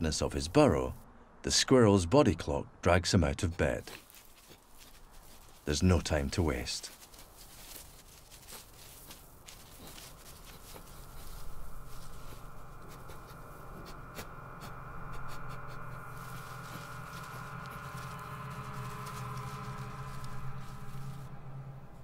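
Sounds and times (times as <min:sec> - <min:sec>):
dry grass rustling and crackling: 0:03.6 - 0:22.0
steady sustained tones: 0:07.1 - 0:22.0.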